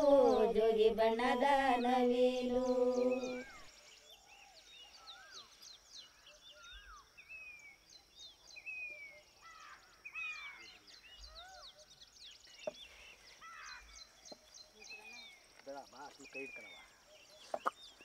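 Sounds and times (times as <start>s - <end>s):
birds whistling and chirping: 0.0s - 18.0s.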